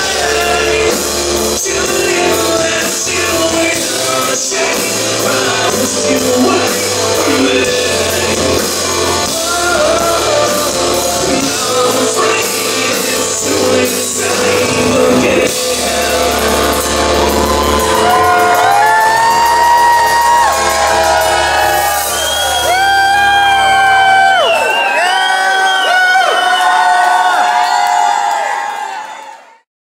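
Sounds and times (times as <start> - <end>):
live rock band playing: 0.0 - 24.4
person singing and shouting: 1.7 - 16.8.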